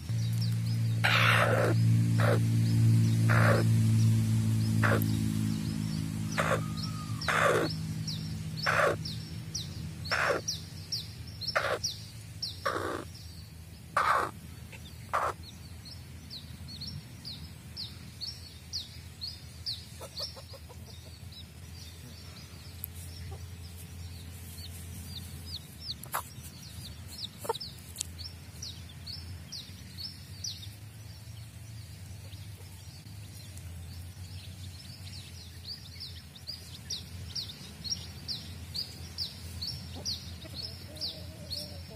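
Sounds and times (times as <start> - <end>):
chicks peeping: 0.0 - 30.8, 31.4 - 41.9
hen clucking: 1.0 - 2.5, 3.2 - 3.7, 4.8 - 5.2, 6.3 - 7.8, 8.6 - 9.1, 10.0 - 10.6, 11.5 - 11.9, 12.6 - 13.1, 14.0 - 15.5, 19.9 - 21.3, 25.1 - 28.1.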